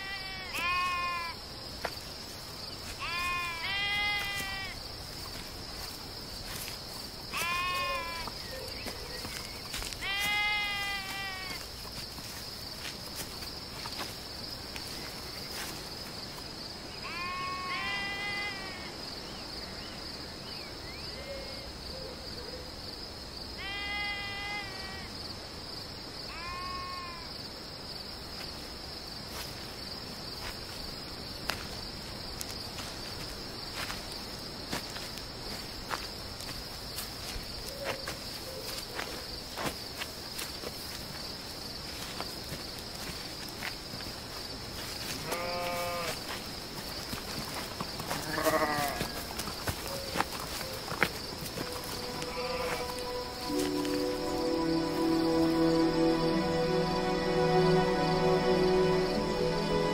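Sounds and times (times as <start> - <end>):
sheep bleating: 0.0 - 1.4, 3.0 - 4.8, 7.3 - 8.3, 10.0 - 11.6, 17.0 - 18.9, 23.6 - 25.1, 26.3 - 27.3, 45.2 - 46.2, 48.1 - 49.4, 52.0 - 53.4
crickets chirring: 0.0 - 59.9.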